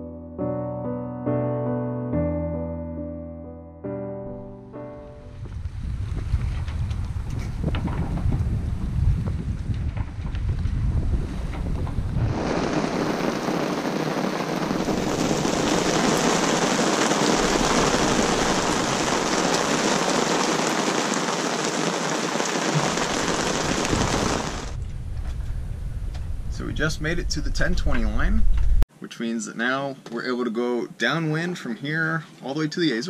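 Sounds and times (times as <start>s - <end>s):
heavy rain falling: 6.9s - 24.9s.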